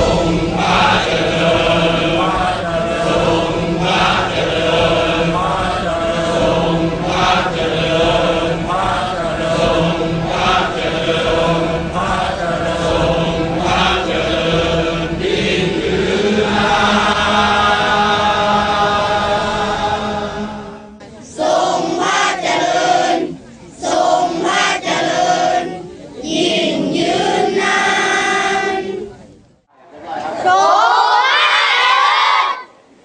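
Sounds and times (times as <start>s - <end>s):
steady low drone: 0.0s - 21.3s
choir chanting in unison: 0.0s - 29.2s.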